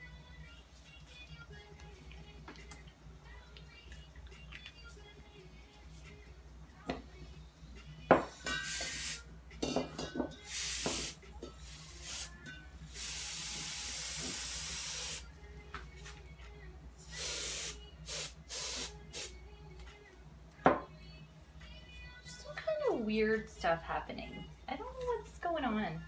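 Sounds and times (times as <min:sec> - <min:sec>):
compressed air hissing: 0:08.5 - 0:09.2, 0:10.4 - 0:15.2, 0:17.0 - 0:19.3.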